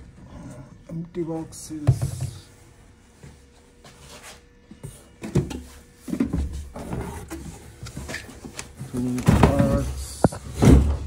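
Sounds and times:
cardboard boxes scraping and knocking: 0:03.9 - 0:11.0.

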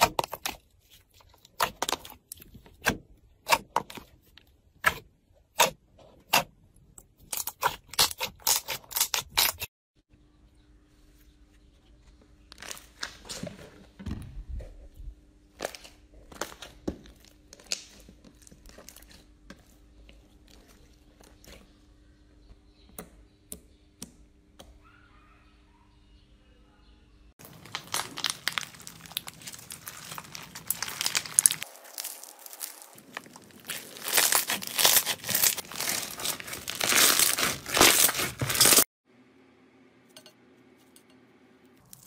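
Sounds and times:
slime popping and crackling: 0:27.4 - 0:38.8
crunchy crackle of beaded slime: 0:27.4 - 0:38.9.

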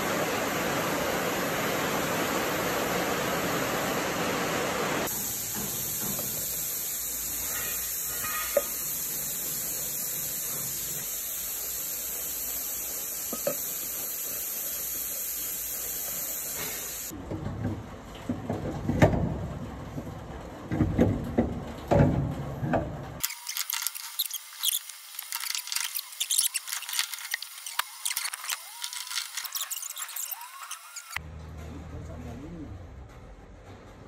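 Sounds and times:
steady hiss: 0:00.0 - 0:17.1.

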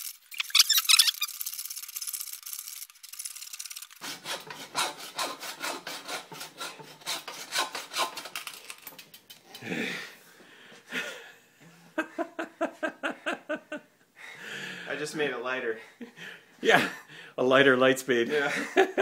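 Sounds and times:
hacksaw cutting: 0:03.5 - 0:09.2.

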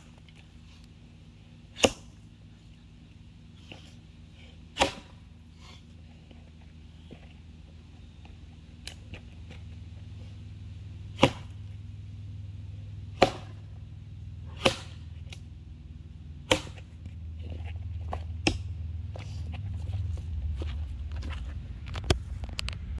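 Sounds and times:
axe chopping log: 0:01.7 - 0:02.2, 0:04.7 - 0:05.3, 0:11.1 - 0:11.7, 0:13.0 - 0:13.7, 0:14.4 - 0:15.5, 0:16.4 - 0:17.1, 0:18.1 - 0:18.7.

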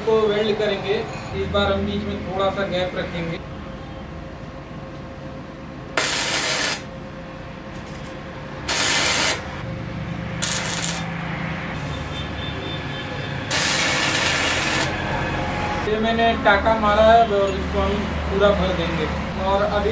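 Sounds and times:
welding arc crackling: 0:06.0 - 0:06.9, 0:08.6 - 0:09.6, 0:10.4 - 0:11.2, 0:13.5 - 0:15.0.

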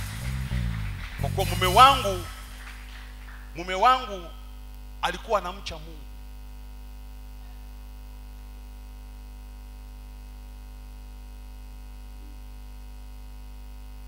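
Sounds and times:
faint hiss: 0:00.0 - 0:06.1
electrical mains hum: 0:00.0 - 0:14.0.

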